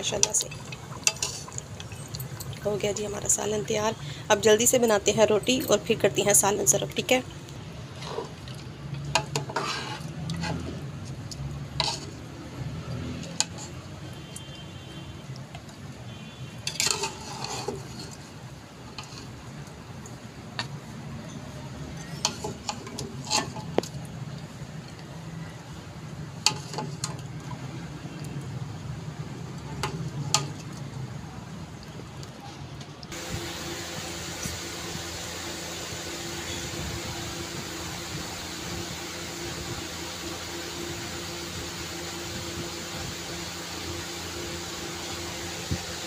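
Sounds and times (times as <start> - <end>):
metal ladle scraping a pot: 0.1 - 2.4, 7.9 - 8.5, 9.2 - 10.8, 11.7 - 12.2, 13.3 - 13.8, 16.6 - 19.4, 22.0 - 23.9
steady low hum: 33.1 - 46.0.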